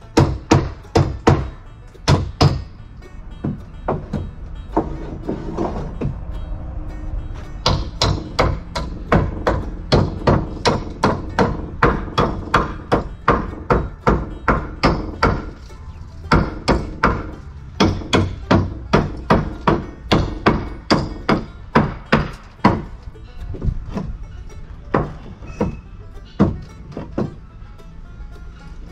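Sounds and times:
hammer striking nails into wood: 0.2s - 2.7s, 7.6s - 15.6s, 16.3s - 22.8s, 26.4s - 27.4s.

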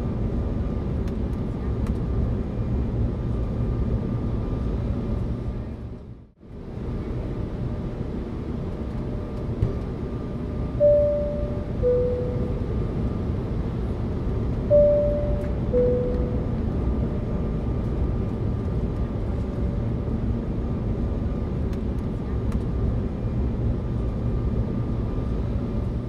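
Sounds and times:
aircraft cabin rumble: 0.0s - 26.0s
two-note chime: 10.8s - 12.6s, 14.7s - 16.5s.

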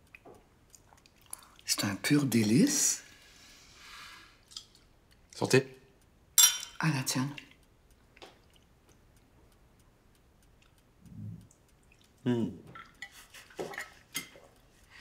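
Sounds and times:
cutlery clinking on plates: 6.4s - 6.8s, 12.7s - 14.5s.

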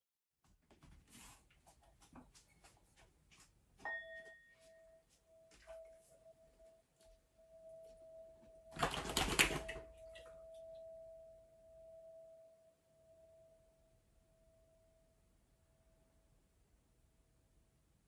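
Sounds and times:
singing bowl ringing: 3.9s - 8.8s, 9.8s - 16.4s.

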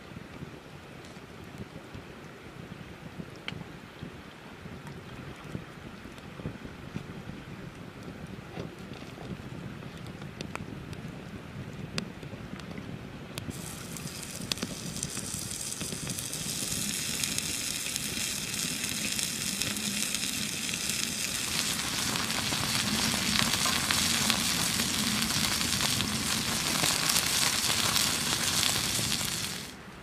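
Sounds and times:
burger patty sizzling on hot stone: 13.5s - 29.8s
wood fire crackling: 13.5s - 29.8s.

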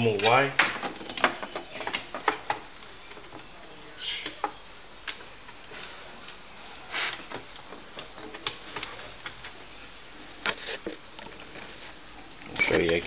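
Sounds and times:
scraping rustles: 5.7s - 13.0s.

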